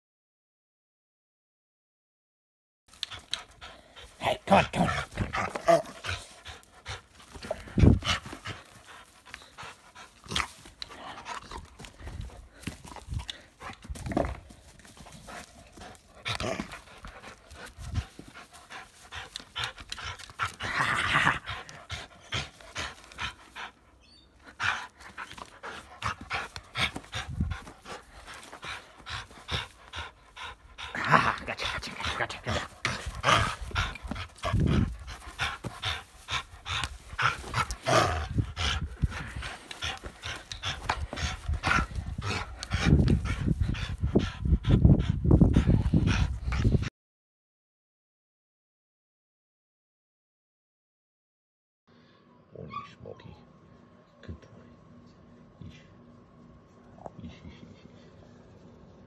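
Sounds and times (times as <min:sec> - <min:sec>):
bumps and rustles of tugging: 0:02.9 - 0:23.7, 0:24.7 - 0:46.9
dog panting hard: 0:02.9 - 0:46.9.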